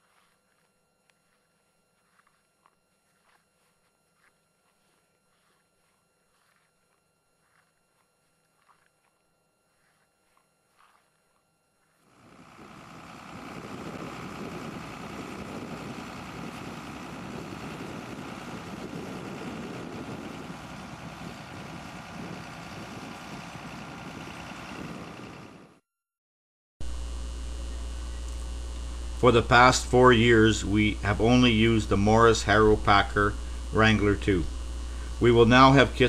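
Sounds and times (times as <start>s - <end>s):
low steady hum: 0.0s - 25.8s, 26.8s - 36.0s
tractor engine running: 11.8s - 25.8s, 26.8s - 36.0s.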